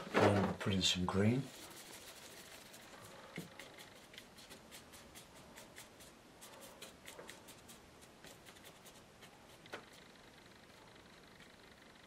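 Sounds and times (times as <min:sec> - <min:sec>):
paintbrush scratching on paper: 0:00.7 - 0:10.4.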